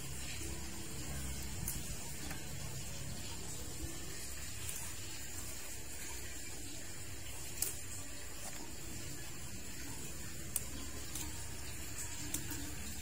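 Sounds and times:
steady outdoor hiss: 0.0s - 13.0s
plant picking clicks and rustles: 1.0s - 2.8s, 7.3s - 13.0s.

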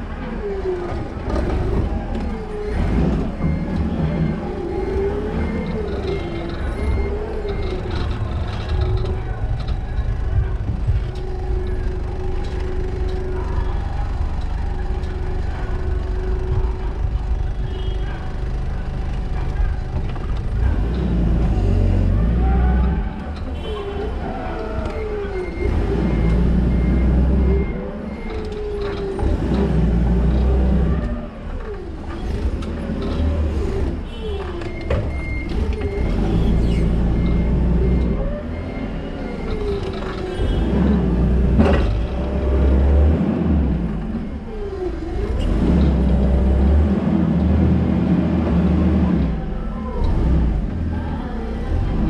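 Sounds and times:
forklift motor rumbling: 0.0s - 52.0s.

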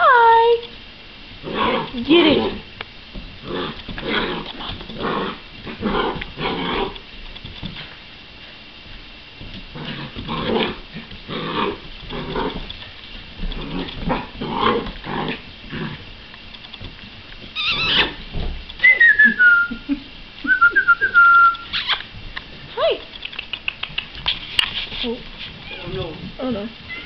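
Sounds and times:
puppy growling and yapping: 1.4s - 2.7s, 3.4s - 7.0s, 9.7s - 12.7s, 13.4s - 16.0s, 17.6s - 18.2s.

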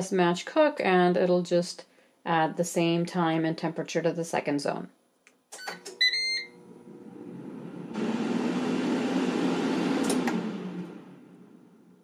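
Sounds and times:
fan whoosh and hum: 6.8s - 12.0s.

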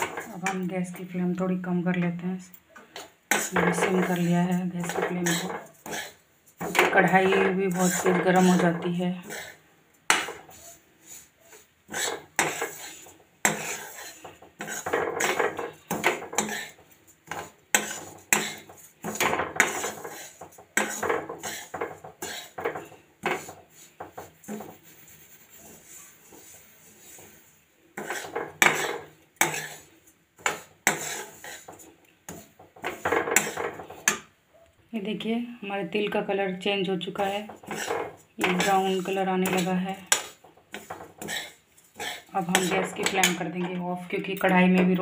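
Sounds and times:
spoon scraping a steel pan: 0.0s - 1.1s, 3.0s - 34.3s, 37.0s - 44.9s
seeds rustling against pan: 2.9s - 34.1s, 37.1s - 43.6s.

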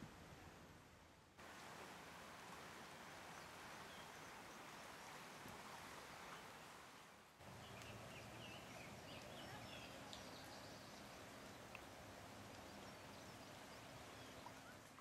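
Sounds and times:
faint rush of river: 0.0s - 15.0s
small birds chirping: 7.4s - 15.0s.

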